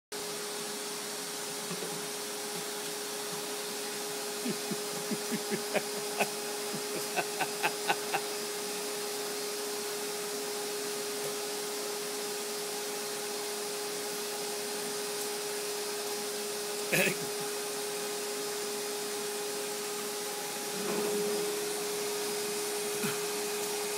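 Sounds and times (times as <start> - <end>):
vacuum cleaner running: 2.6 - 16.7.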